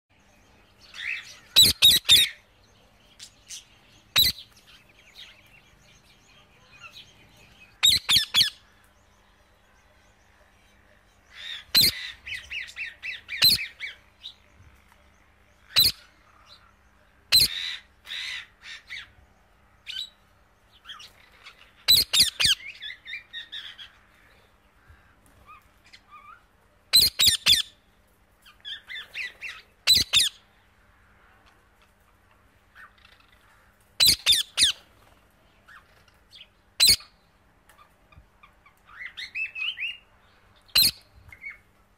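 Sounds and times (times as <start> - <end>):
parrot shrill calls: 1.0 - 2.4, 7.8 - 8.6, 21.9 - 22.7, 25.5 - 27.7, 29.2 - 30.4, 34.0 - 34.8, 36.8 - 37.1.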